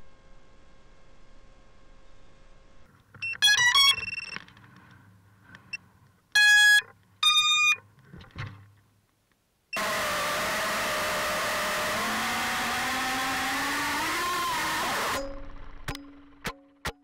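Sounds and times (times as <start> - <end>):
drone motor startup beeps: 3.2 - 4.4, 6.4 - 7.8, 9.7 - 16.4.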